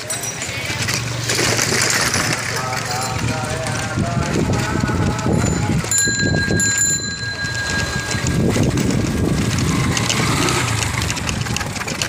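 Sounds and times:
cycle rickshaw rumbling: 0.0s - 12.0s
high ringing tone: 5.4s - 8.5s.

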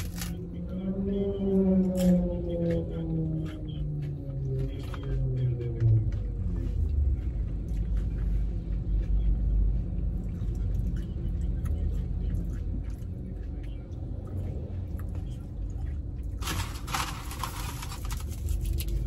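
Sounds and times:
food wrapper clicks and rustles: 0.0s - 0.4s, 16.4s - 19.0s
low rumble in car cabin: 0.0s - 19.0s.

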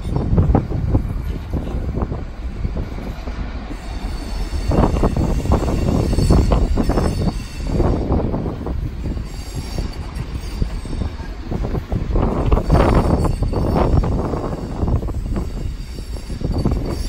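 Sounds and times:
train diesel engine running: 0.0s - 17.0s
faint high wheel squeal: 2.7s - 17.0s.

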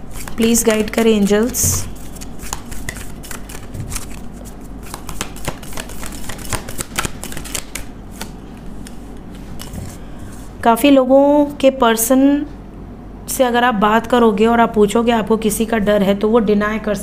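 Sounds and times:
cards being shuffled: 0.1s - 10.0s.

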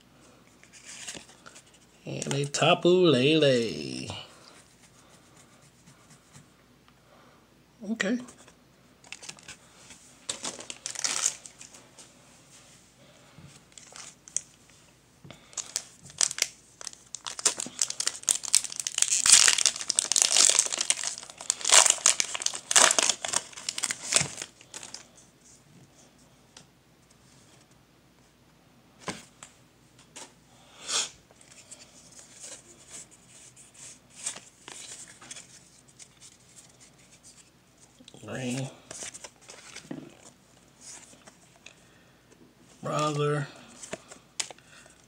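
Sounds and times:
foil wrapper crinkling: 10.3s - 11.7s, 15.5s - 25.1s
cards rustling: 10.3s - 11.8s, 15.6s - 25.1s, 31.4s - 37.5s, 38.4s - 41.6s.

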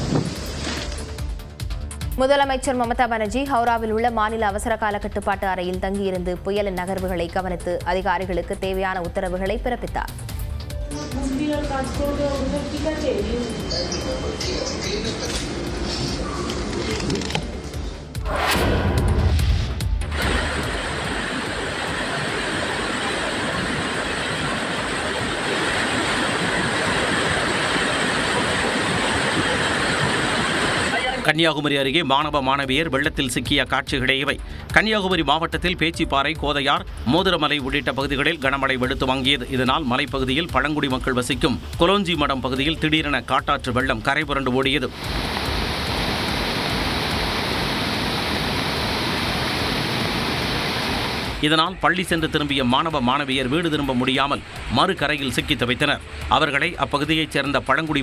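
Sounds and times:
rushing flood torrent: 20.2s - 31.3s, 44.8s - 51.6s.

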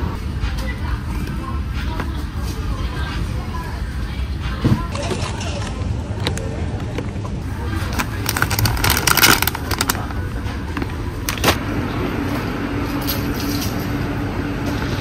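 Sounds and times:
low rumble of background noise: 0.0s - 15.0s
plastic packet crinkling: 7.7s - 10.2s.

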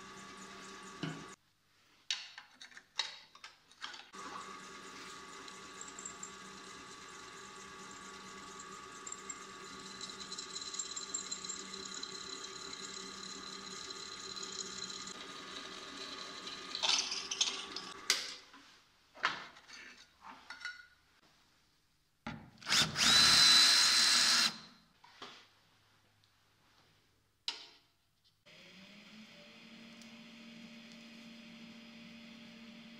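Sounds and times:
drill press motor running: 0.0s - 1.4s, 4.2s - 18.0s, 22.7s - 24.6s
drill bit cutting steel: 4.2s - 16.8s, 22.7s - 24.7s
cordless drill cutting metal sheet: 22.7s - 24.7s.

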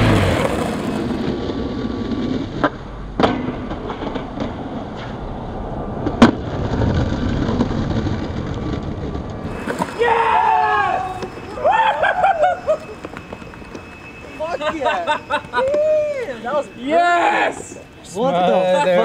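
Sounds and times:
skateboard wheels rolling on concrete: 0.0s - 19.0s
skateboard clacks: 2.0s - 5.0s.

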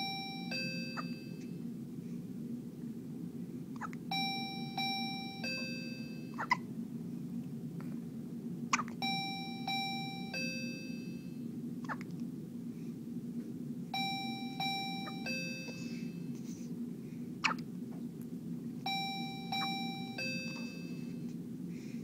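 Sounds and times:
electronic chime tune: 0.0s - 1.4s, 4.1s - 6.3s, 9.0s - 11.3s, 14.0s - 16.1s, 18.9s - 21.1s
steady low hum: 0.0s - 22.0s.

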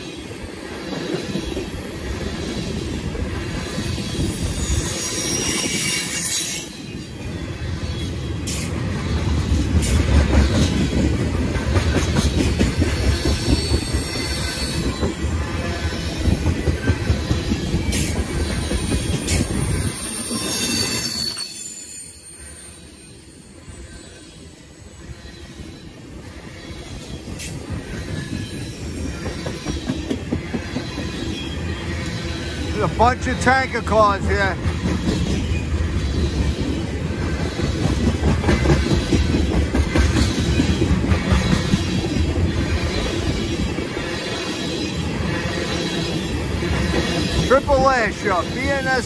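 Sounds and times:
steel wheels rumbling on rail: 0.0s - 49.0s
high wheel squeal: 4.0s - 7.3s, 13.1s - 16.2s, 17.8s - 25.8s.

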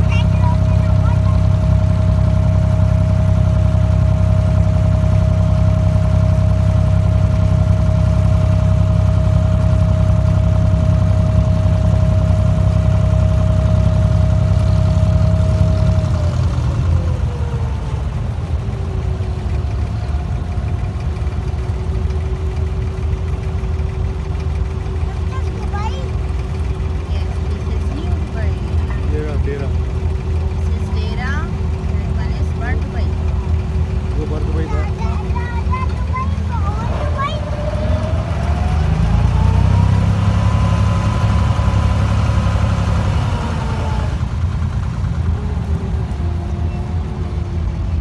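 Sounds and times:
boat diesel engine with whine: 0.0s - 48.0s.

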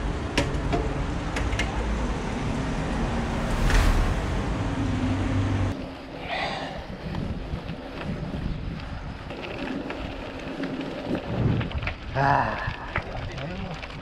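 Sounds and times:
motor vehicle engine humming: 0.0s - 6.2s.

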